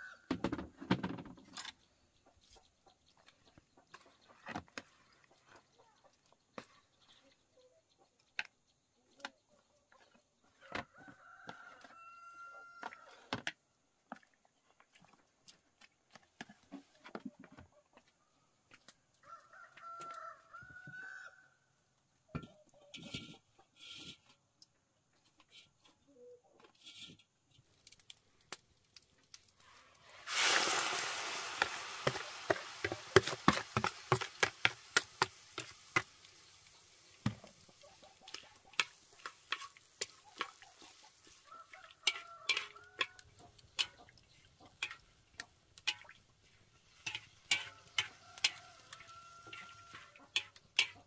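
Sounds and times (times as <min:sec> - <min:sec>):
rooster crowing: 0:11.0 - 0:13.1, 0:19.2 - 0:21.6, 0:41.4 - 0:43.3, 0:47.6 - 0:50.2.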